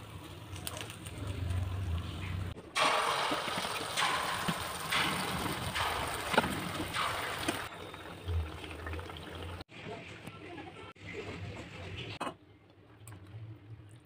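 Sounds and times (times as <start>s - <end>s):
batter sizzling in hot oil: 0.0s - 9.7s.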